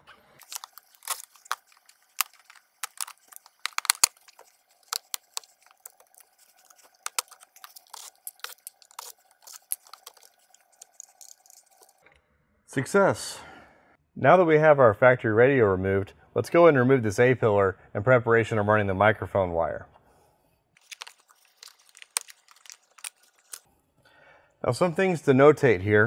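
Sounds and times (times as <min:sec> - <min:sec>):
plastic rubbing and creaking: 0:00.4 - 0:12.0, 0:20.8 - 0:23.6.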